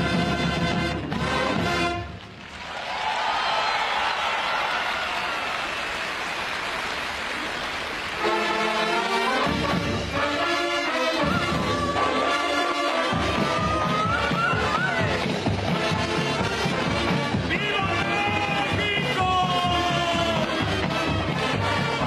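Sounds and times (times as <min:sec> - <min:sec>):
brass band playing a march: 0:00.0 - 0:02.2, 0:08.2 - 0:22.0
background noise: 0:00.0 - 0:22.0.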